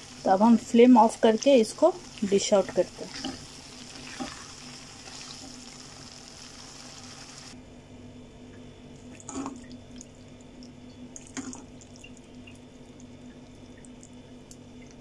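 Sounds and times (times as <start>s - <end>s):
steady low hum: 7.5s - 15.0s.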